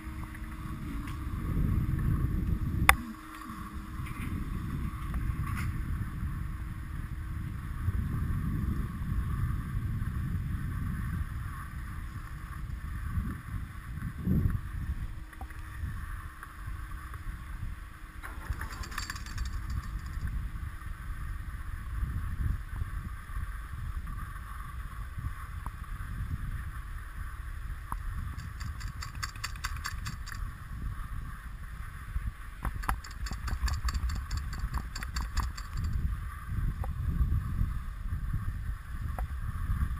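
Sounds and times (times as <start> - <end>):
rapid clicking: 18.3 - 20.3, 28.4 - 30.4, 32.6 - 36.0.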